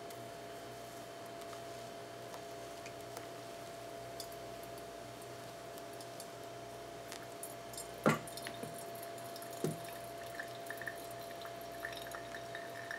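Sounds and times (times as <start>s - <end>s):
faint hum: 0.0s - 12.9s
coffee dripping through filter: 4.1s - 12.9s.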